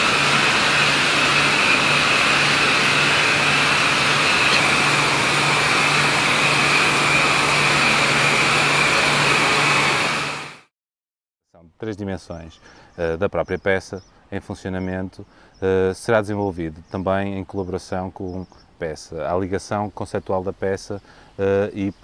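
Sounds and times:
mechanical drone with whine: 0.0 - 10.6.

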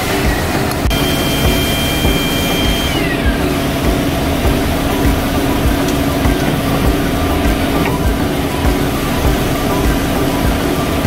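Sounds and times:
high whine sliding down: 0.0 - 11.0
hydraulic pump mechanical drone: 0.0 - 11.0.

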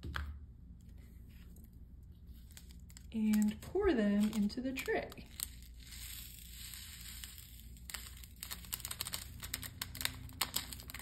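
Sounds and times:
tiny beads pouring into tray: 4.2 - 11.0.

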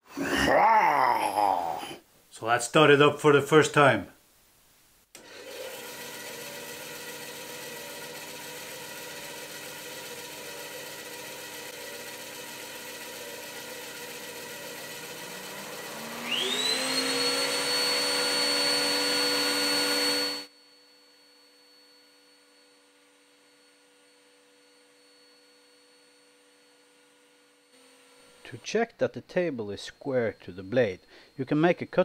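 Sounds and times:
bandsaw running: 5.2 - 20.5
motor spinning up with whine: 5.2 - 28.4.

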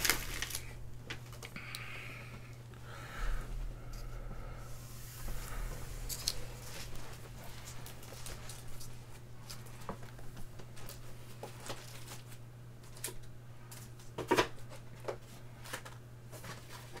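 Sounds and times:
trading cards clicking and rustling: 0.0 - 1.8
low electrical hum: 0.0 - 17.0.

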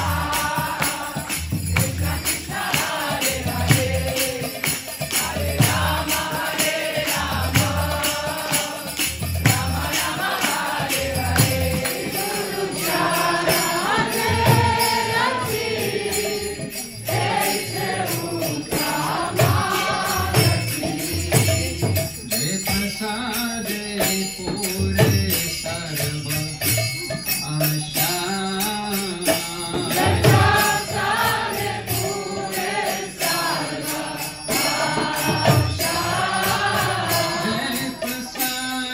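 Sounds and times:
group chanting: 0.0 - 21.5, 29.8 - 38.1
hand cymbals jingling: 0.0 - 38.9.

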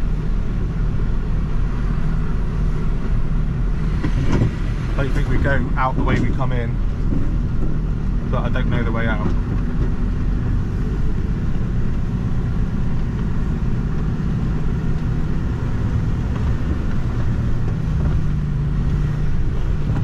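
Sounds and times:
diesel lorry engine rumbling: 0.0 - 20.0.

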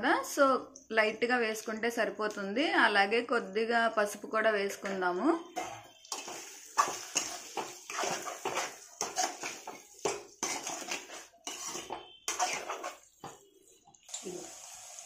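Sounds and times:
spatula scraping a steel pan: 5.6 - 13.8.

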